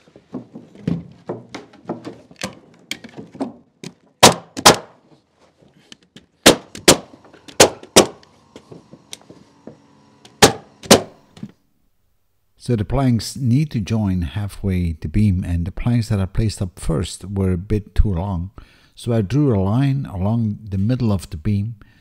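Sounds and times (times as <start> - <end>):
nail gun shots: 4.2 - 5.0, 6.4 - 8.2, 10.4 - 11.2.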